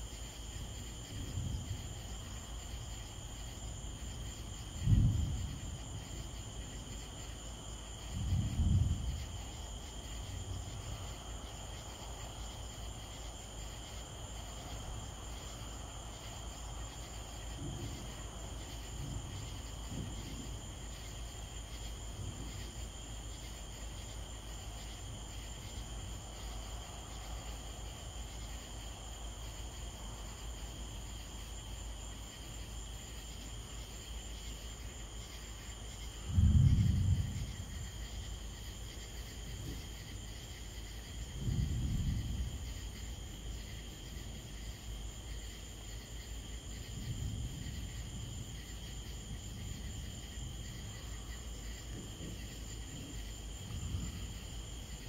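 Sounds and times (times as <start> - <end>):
crickets and insects buzzing: 0.0 - 55.0.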